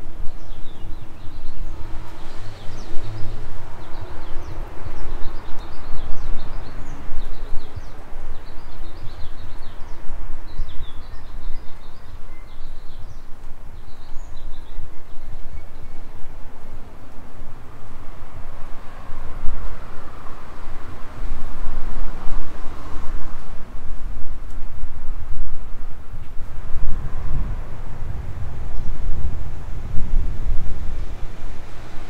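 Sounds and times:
small birds chirping: 0.3s - 16.9s
loud uneven low rumble: 1.3s - 7.8s.

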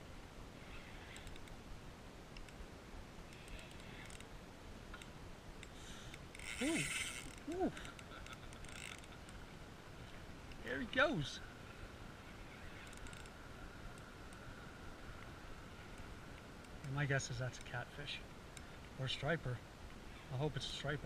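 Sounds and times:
fishing reel clicking: 1.1s - 1.6s, 3.3s - 4.3s, 5.0s - 9.4s, 12.7s - 14.4s
man saying ooh: 6.6s - 7.8s.

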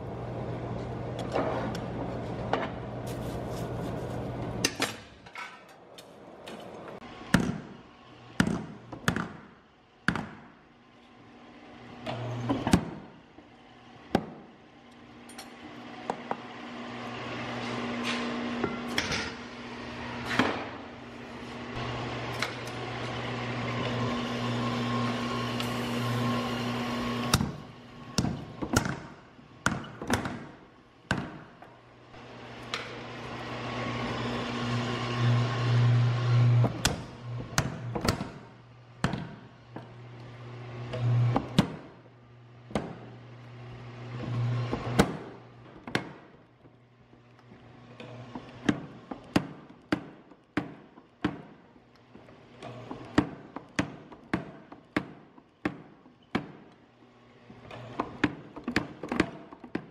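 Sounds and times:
low machine hum: 0.0s - 5.3s, 30.6s - 45.8s.

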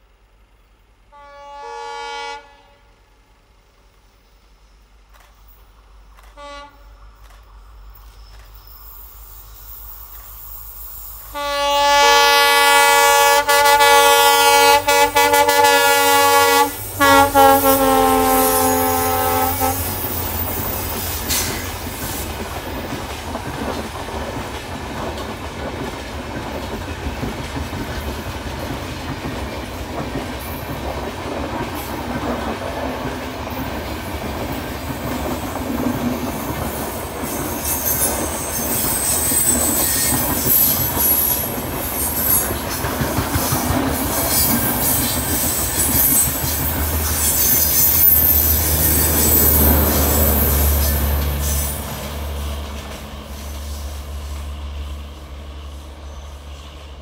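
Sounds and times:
diesel locomotive horn: 1.1s - 3.1s, 6.3s - 7.1s, 11.3s - 20.7s
train wheels rumbling and clattering: 3.4s - 57.0s.

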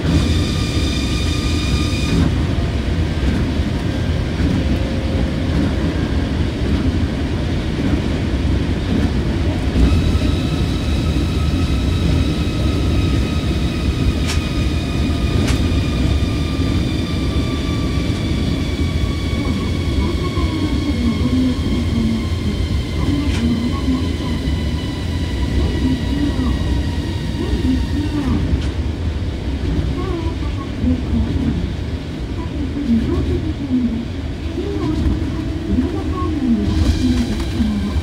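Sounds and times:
train tyres rumbling on track: 0.0s - 38.0s.

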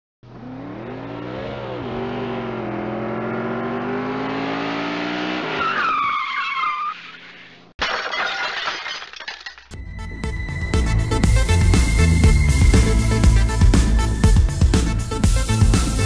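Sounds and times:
car engine revving: 0.2s - 5.6s
tyres screeching: 5.5s - 7.7s.

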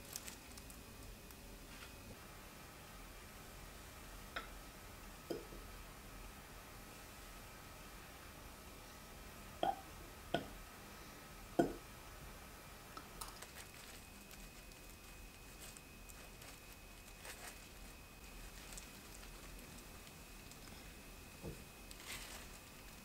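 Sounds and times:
plastic gloves rustling: 0.0s - 2.3s, 13.1s - 23.0s.

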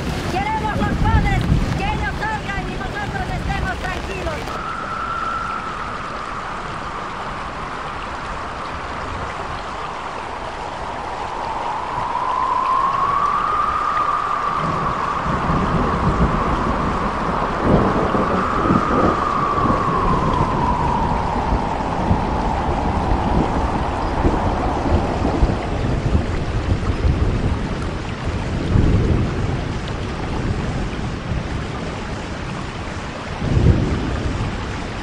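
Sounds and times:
steady rain: 0.0s - 35.0s
wind buffeting microphone: 0.0s - 35.0s
thin whistle-like tone: 4.6s - 7.1s, 11.3s - 15.7s.

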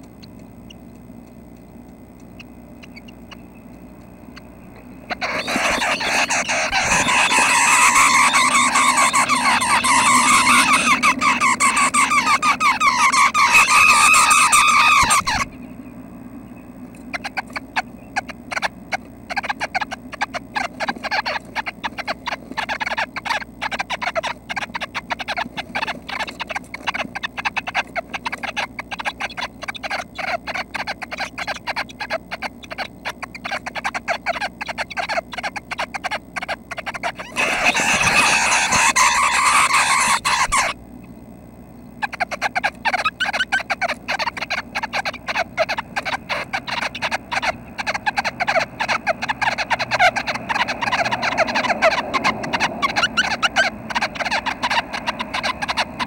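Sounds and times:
nestlings begging with buzzy calls: 0.0s - 56.0s
clicks and scratches in nest: 19.3s - 35.9s, 36.5s - 40.7s.

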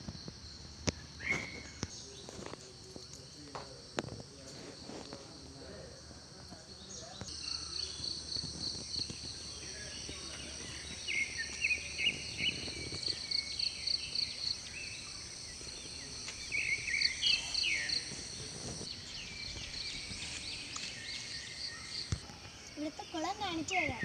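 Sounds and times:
bird chirping: 6.6s - 24.0s
insects shrilling: 6.9s - 24.0s.

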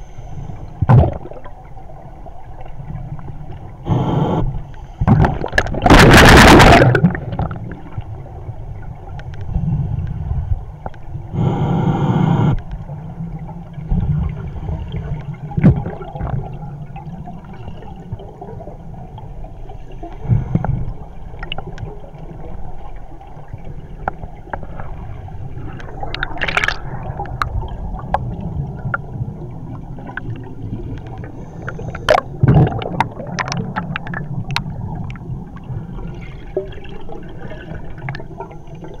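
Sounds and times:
underwater gurgling: 0.0s - 39.0s
air bubbling underwater: 5.1s - 7.9s, 25.9s - 29.0s, 31.9s - 35.2s.

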